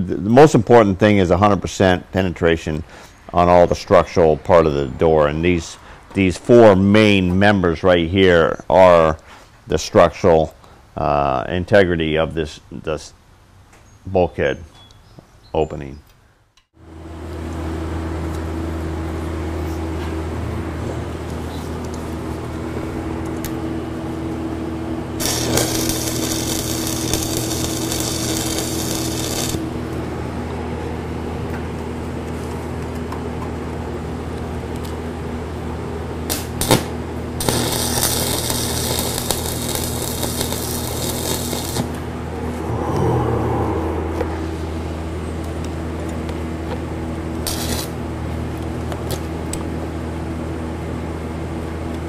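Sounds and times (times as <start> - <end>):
steady low hum: 16.8 - 52.0
crackling welding arc: 25.2 - 29.8, 36.3 - 42.0, 47.4 - 48.0, 49.0 - 49.3.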